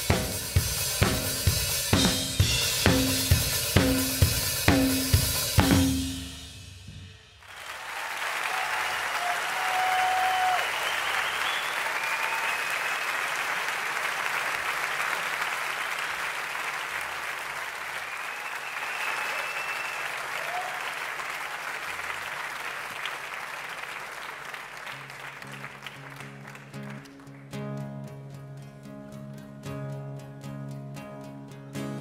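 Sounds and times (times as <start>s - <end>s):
audience applauding: 7.4s - 27.6s
whistles: 9.2s - 13.3s, 18.0s - 20.8s
guitar playing: 25.4s - 32.0s.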